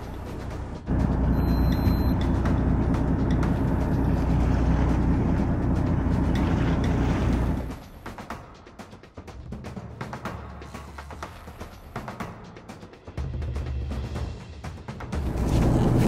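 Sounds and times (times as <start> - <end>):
steady low rumble: 0.0 - 7.9.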